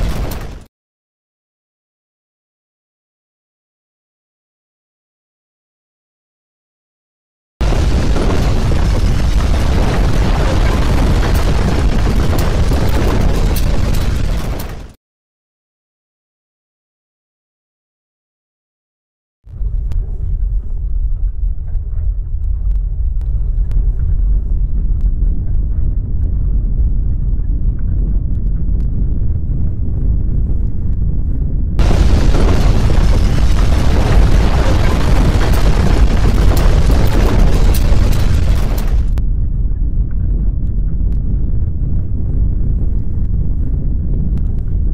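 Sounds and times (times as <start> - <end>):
deep rumble of landslide: 0.0 - 0.7, 7.6 - 15.0, 19.5 - 44.9
sharp cracks: 7.6 - 15.0, 31.8 - 39.2.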